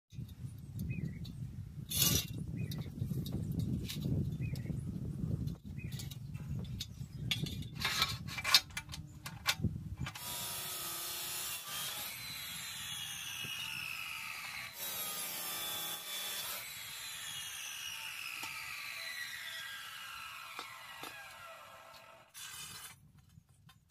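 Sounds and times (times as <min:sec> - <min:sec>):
cut-off saw grinding metal: 0:10.1 - 0:23.0
scribe scraping on steel: 0:10.1 - 0:23.0.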